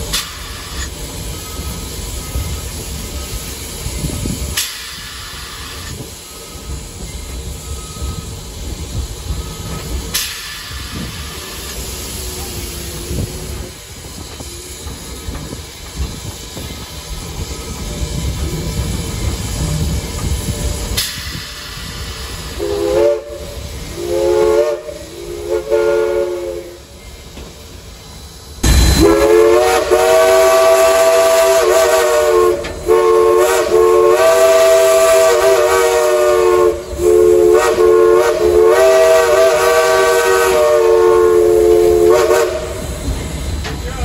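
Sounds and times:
loud steam rush: 0.0s - 44.0s
steam whistle blasts: 21.0s - 27.0s, 28.6s - 43.0s.

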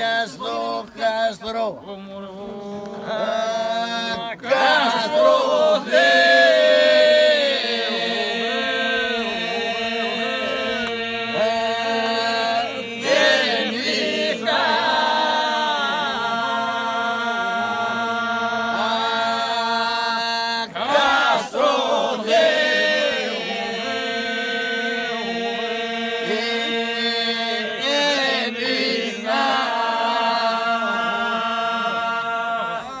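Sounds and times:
men singing drone: 0.0s - 33.0s.

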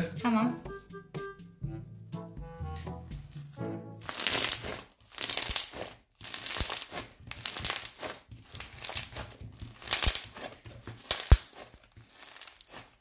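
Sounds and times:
slime squished by hand: 4.0s - 13.0s.

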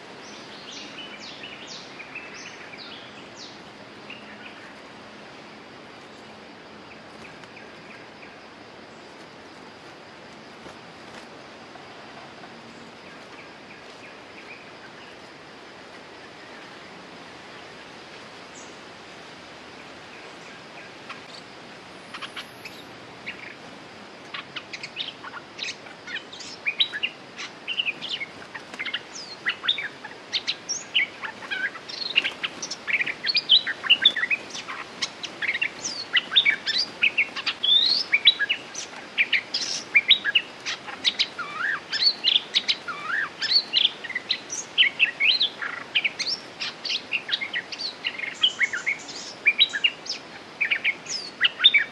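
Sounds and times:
background hiss: 0.0s - 51.9s
bulbuls chirping: 20.1s - 51.9s.

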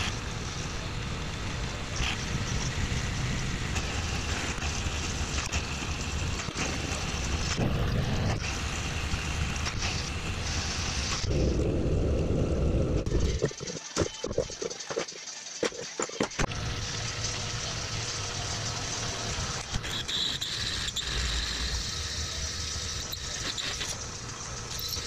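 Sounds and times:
milling machine cutting steel: 13.0s - 25.0s.

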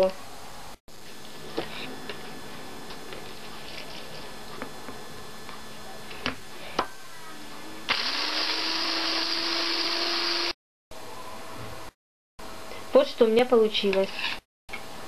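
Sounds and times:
electric hand blender whisking: 7.9s - 10.6s.

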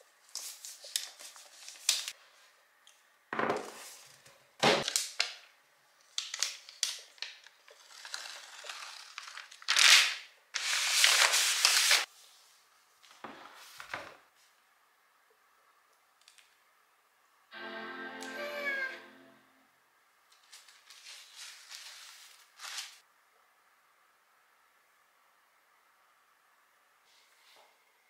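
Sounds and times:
cardboard and paper rustling: 0.3s - 2.1s, 6.3s - 10.0s, 10.6s - 12.4s, 20.4s - 23.0s
paper wrap tearing: 6.2s - 12.1s, 20.4s - 23.0s.

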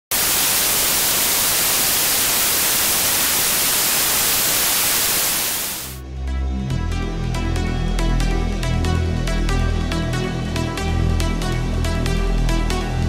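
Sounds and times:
loud static hiss: 0.0s - 6.0s.

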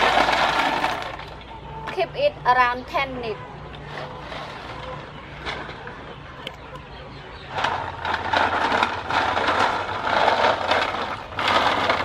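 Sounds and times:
snail shells clattering in water: 0.0s - 1.5s, 7.5s - 12.0s.

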